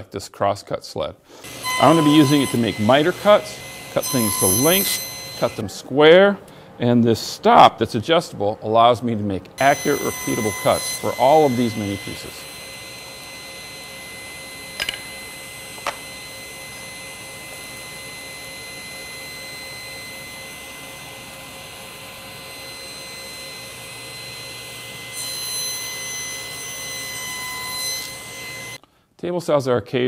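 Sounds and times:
saw blade cutting wood: 1.4s - 5.6s, 9.6s - 28.8s
table saw blade whining: 1.4s - 5.6s, 9.6s - 28.8s.

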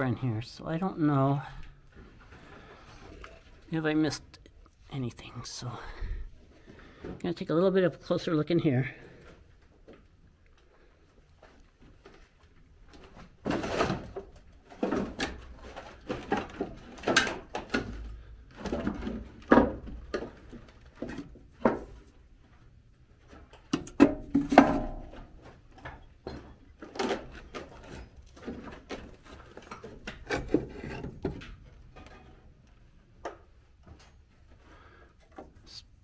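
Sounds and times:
wooden knocks and creaks: 12.9s - 22.2s, 23.4s - 35.6s.

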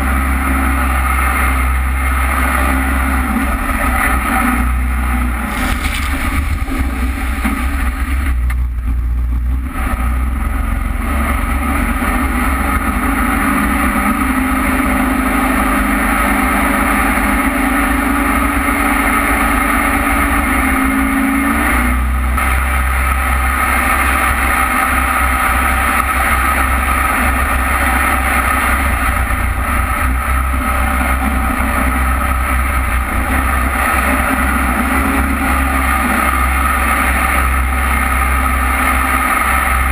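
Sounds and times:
boat engine drone: 0.0s - 39.9s
rushing wind: 0.7s - 39.9s
water spray: 5.5s - 8.0s.

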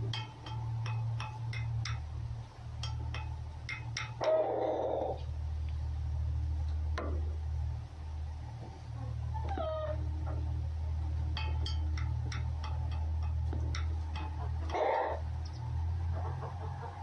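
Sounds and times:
steady low rumble: 5.2s - 17.0s.

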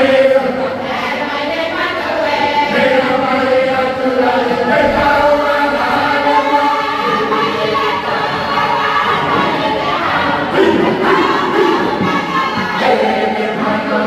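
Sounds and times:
congregation singing a hymn: 0.0s - 14.0s.

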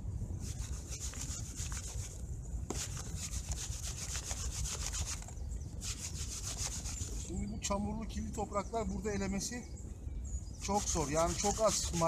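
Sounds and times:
soil scraping across sieve screen: 10.6s - 12.0s.

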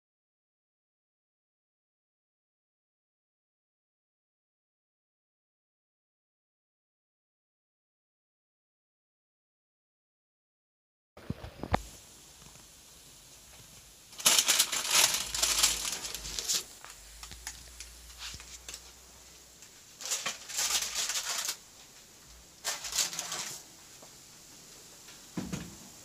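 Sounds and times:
parchment paper rustling: 13.6s - 19.0s, 20.0s - 22.0s, 22.6s - 23.7s.

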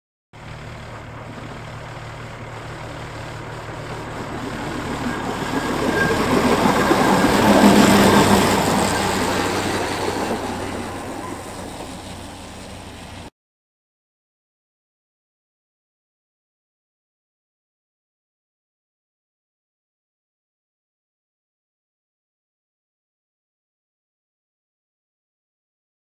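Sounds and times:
railcar passing by: 0.4s - 13.3s.

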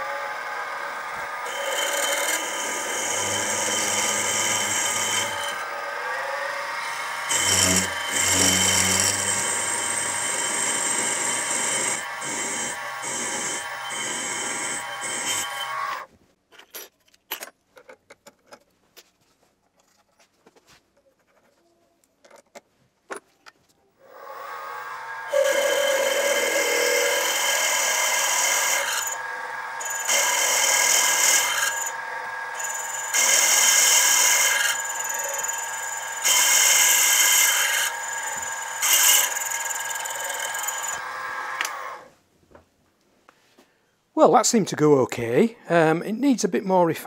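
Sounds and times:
drill bit cutting cast iron: 0.0s - 16.1s, 24.1s - 42.1s
mill spindle whining: 0.0s - 16.1s, 24.1s - 42.1s.

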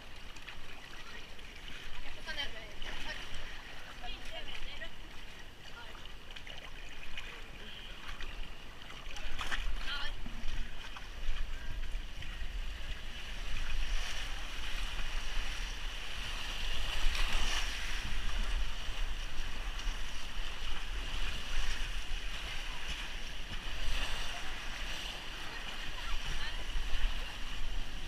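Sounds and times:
water rushing down a waterslide: 0.0s - 28.0s
wind rumbling on microphone: 9.2s - 28.0s.

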